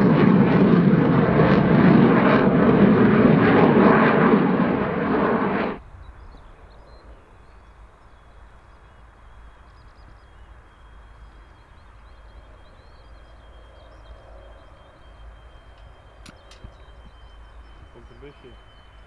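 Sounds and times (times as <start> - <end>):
steady low rumble: 0.0 - 19.0
small birds chirping: 5.8 - 19.0.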